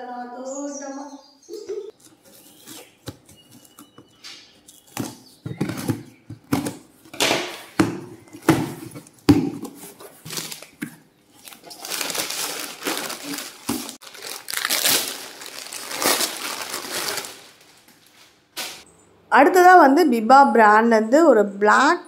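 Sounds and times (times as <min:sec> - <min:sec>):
packing tape ripping off cardboard: 0:07.4 - 0:18.8
plastic packaging crinkling: 0:08.8 - 0:18.8.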